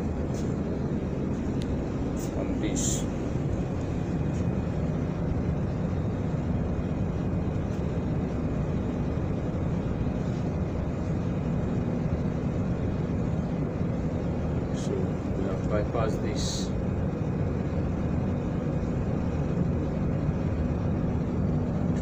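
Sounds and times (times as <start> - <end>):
faint high whine: 0.0 - 22.0
industrial machinery rumble: 0.0 - 22.0.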